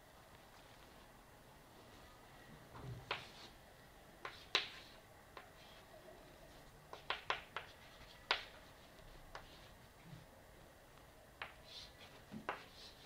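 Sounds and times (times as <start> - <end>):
chalk tapping on blackboard: 3.0 - 3.5, 4.2 - 5.6, 6.9 - 9.7, 11.4 - 13.0.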